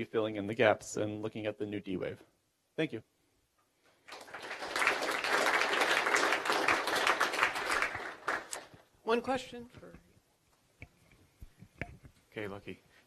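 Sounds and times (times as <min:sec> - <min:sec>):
audience applause: 0:04.1 - 0:08.7.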